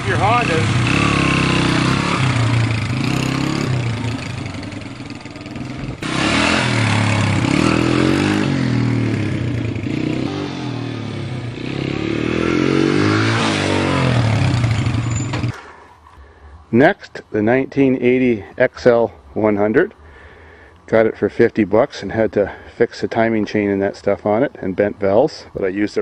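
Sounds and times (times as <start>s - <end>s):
motorcycle engine revving: 0.0s - 15.8s.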